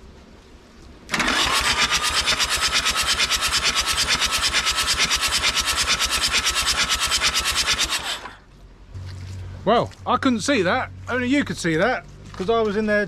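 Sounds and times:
starter motor cranking engine: 1.1 - 8.5
starter whine: 1.1 - 8.6.

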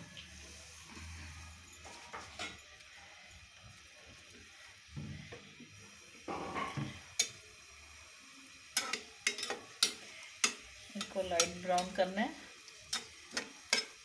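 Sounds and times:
onions sizzling in hot oil: 0.0 - 14.0
spatula stirring: 8.8 - 14.0.

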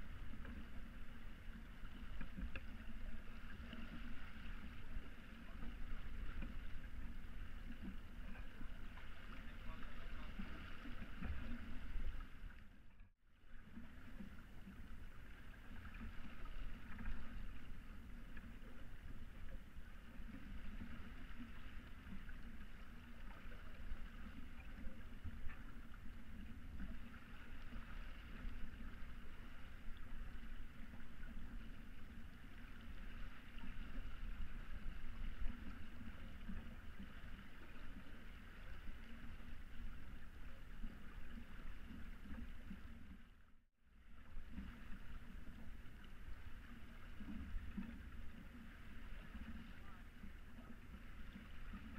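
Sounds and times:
water rushing along a boat hull: 0.0 - 51.9.

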